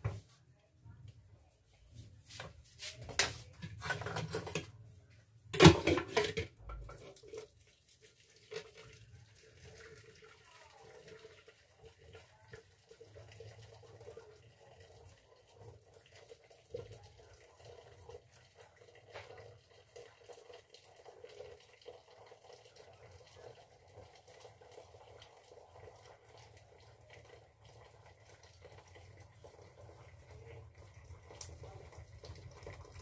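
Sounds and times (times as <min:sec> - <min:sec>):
water running: 0:05.5 - 0:33.0
dishes and utensils clinking: 0:05.6 - 0:07.1.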